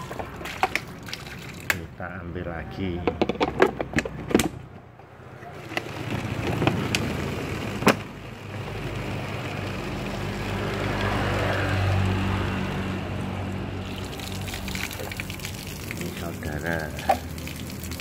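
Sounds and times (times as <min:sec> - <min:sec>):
water filling plastic bottle: 0:00.0 - 0:01.9, 0:05.6 - 0:11.6, 0:13.8 - 0:18.0.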